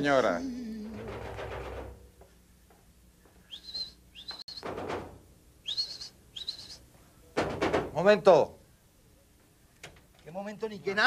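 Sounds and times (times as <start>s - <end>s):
high rising whistles: 3.5s - 4.7s, 5.6s - 6.8s.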